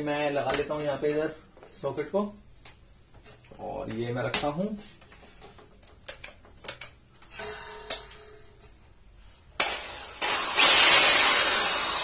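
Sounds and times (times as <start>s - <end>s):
drill motor running: 9.6s - 12.0s.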